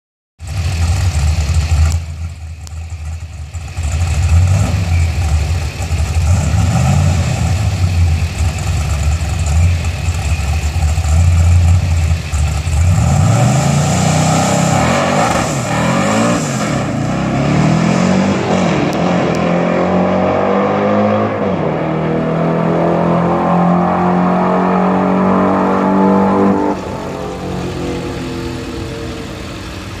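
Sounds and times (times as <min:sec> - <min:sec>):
car engine idling loudly: 0:00.4 - 0:13.4, 0:26.7 - 0:30.0
car accelerating through gears: 0:12.8 - 0:29.6.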